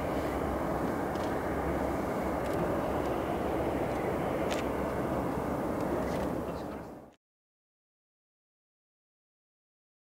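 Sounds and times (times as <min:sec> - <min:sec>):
jet engine rumble: 0:00.0 - 0:07.2.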